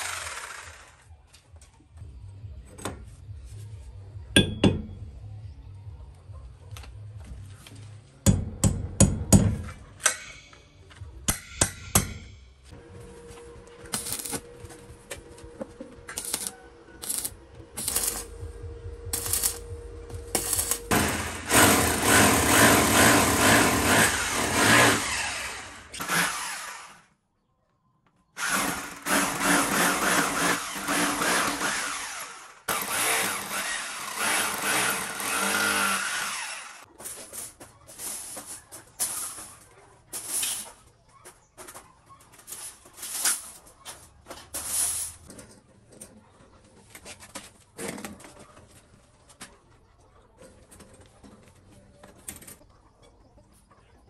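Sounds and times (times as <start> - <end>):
hammer drill boring into concrete: 0.0 - 1.0, 20.4 - 27.1, 28.4 - 36.8.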